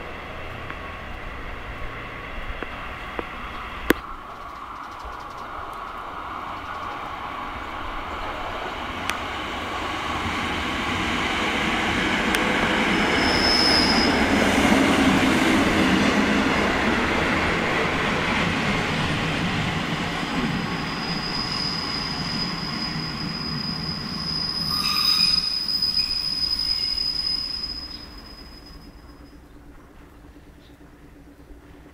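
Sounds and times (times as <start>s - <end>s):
diesel railcar passing: 0.0s - 31.9s
wheels on rails: 0.2s - 31.9s
train clatter: 1.6s - 23.7s
high squeal: 12.7s - 14.3s, 20.6s - 29.4s.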